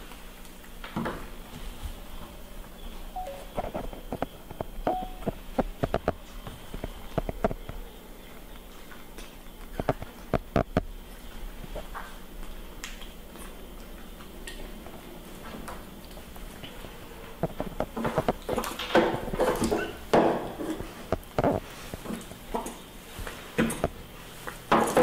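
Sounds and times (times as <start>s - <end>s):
steady low hum: 0.0s - 18.8s.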